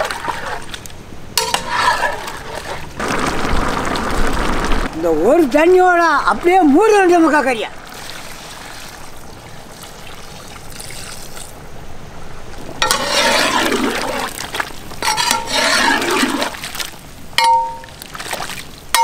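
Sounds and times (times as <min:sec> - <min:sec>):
water pouring into a pot: 0:03.0 - 0:05.0
water sloshing with a ladle: 0:12.6 - 0:19.0
metallic clink: 0:17.4 - 0:17.9.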